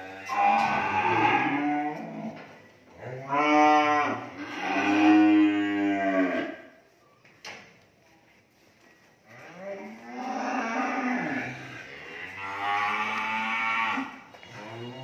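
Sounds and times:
cattle mooing: 0.0s - 2.4s, 3.1s - 6.6s, 9.8s - 15.0s.

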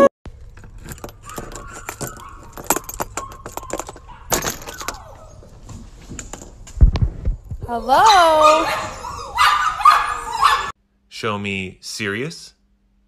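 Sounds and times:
doorknob and latch rattling: 0.4s - 6.7s
puppies whining: 0.8s - 5.7s, 8.0s - 10.8s.

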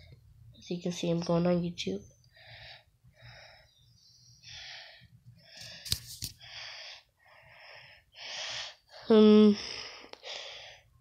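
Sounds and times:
person breathing hard: 2.3s - 11.0s.

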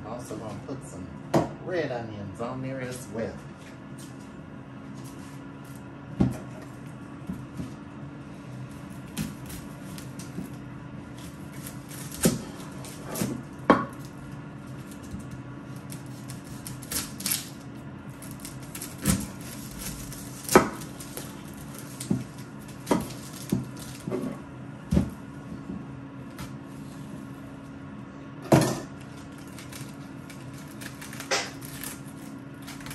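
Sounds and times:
knife chopping on cutting board: 20.5s - 20.9s, 22.9s - 25.8s.

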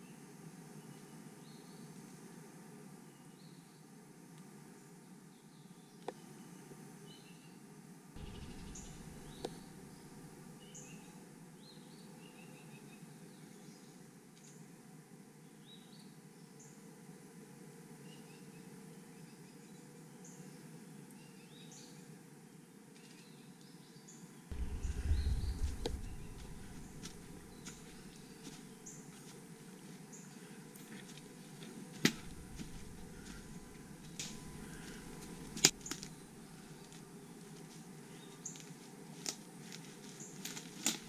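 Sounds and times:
low rumble: 8.2s - 10.5s, 24.5s - 28.7s, 32.1s - 35.8s
birds chirping: 8.2s - 10.8s, 24.5s - 29.0s, 32.1s - 36.4s.

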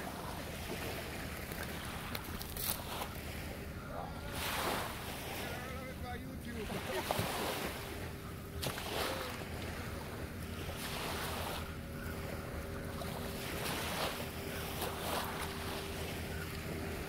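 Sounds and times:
faint steady hum: 0.0s - 17.0s
small waves washing ashore: 0.0s - 17.0s.

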